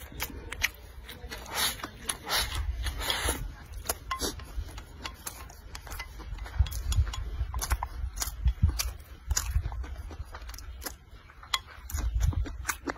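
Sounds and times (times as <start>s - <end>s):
chewing and smacking: 0.0s - 12.9s.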